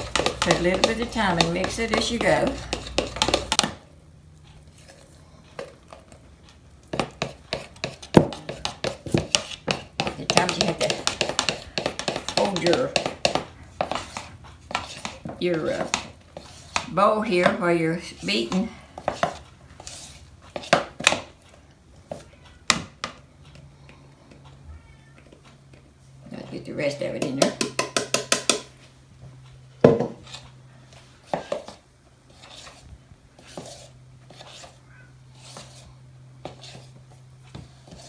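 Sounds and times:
metal spoon knocking bowl: 0.0s - 3.7s, 27.2s - 28.7s
spoon stirring batter in a bowl: 0.0s - 24.6s, 25.2s - 38.0s.

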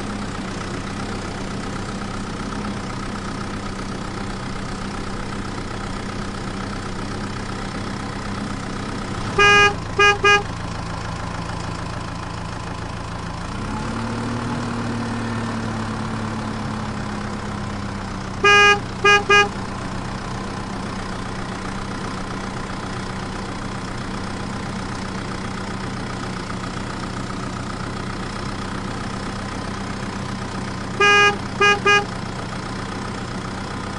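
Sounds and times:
truck engine idling: 0.0s - 33.9s
truck horn tooting: 9.2s - 10.6s, 18.4s - 19.8s, 31.0s - 32.2s.

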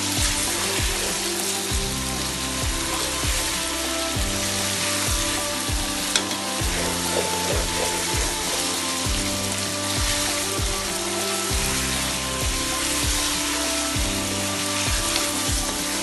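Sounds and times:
chicken sizzling in oil: 0.0s - 16.0s.

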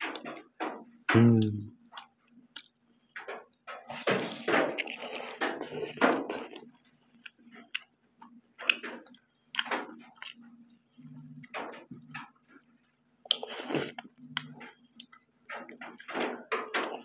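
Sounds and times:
people chewing meat: 1.1s - 12.3s, 13.2s - 17.0s
wet open-mouthed smacking: 13.3s - 15.2s.

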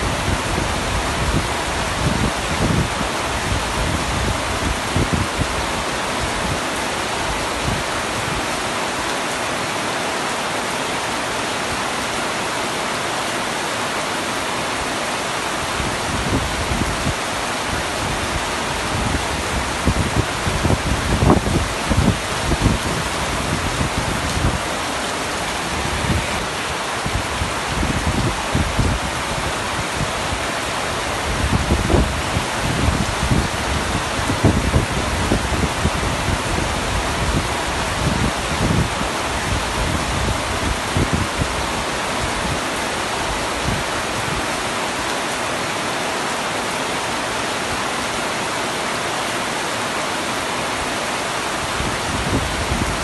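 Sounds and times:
heavy rain on a tent roof: 0.0s - 53.0s.

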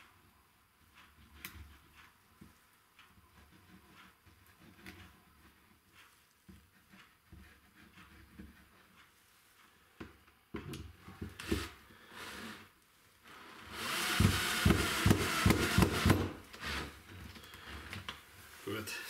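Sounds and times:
cordless drill driving a screw: 13.5s - 16.9s.

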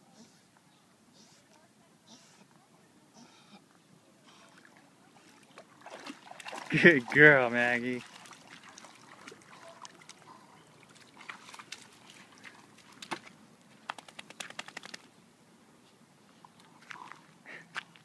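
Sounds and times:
water sloshing: 4.3s - 13.4s.

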